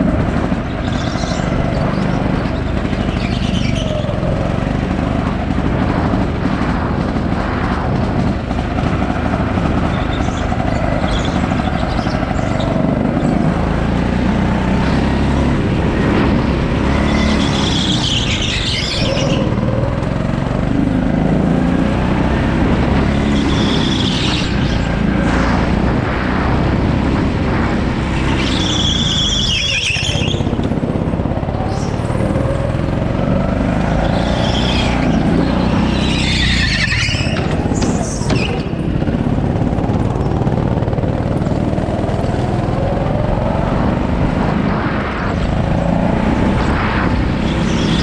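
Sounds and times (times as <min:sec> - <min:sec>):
go-kart motor running: 0:00.0 - 0:48.0
tyres squealing: 0:28.2 - 0:30.7, 0:34.0 - 0:38.8.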